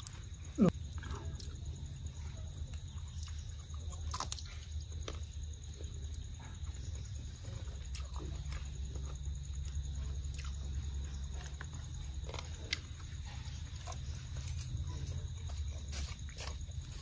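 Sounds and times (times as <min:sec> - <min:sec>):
steady low hum: 0:00.0 - 0:17.0
person chewing and lip smacking: 0:02.7 - 0:05.3, 0:07.7 - 0:09.2, 0:10.3 - 0:10.7.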